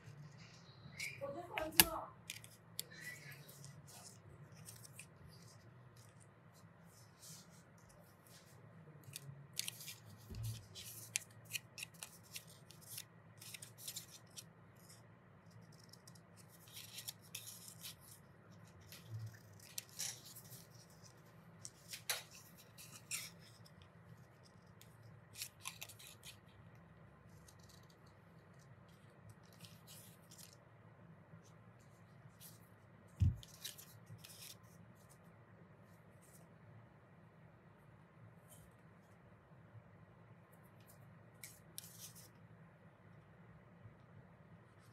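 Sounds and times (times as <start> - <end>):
scissors snipping paper: 1.0 - 5.2, 9.0 - 26.5.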